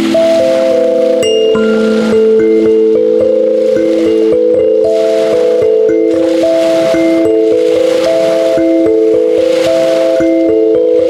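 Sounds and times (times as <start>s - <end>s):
thumb piano ringing notes: 0.0s - 11.0s
waves breaking on pebble shore: 6.2s - 10.5s.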